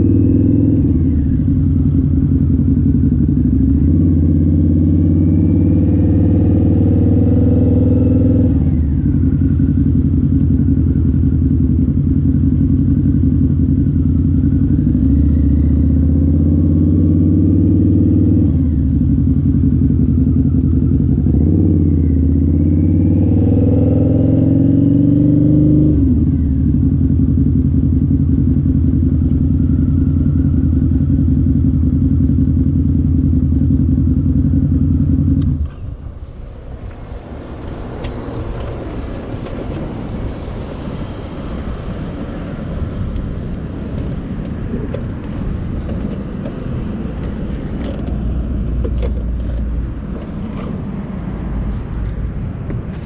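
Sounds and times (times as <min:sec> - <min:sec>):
motorcycle engine idling: 0:01.0 - 0:04.6, 0:08.9 - 0:16.2, 0:26.4 - 0:36.6.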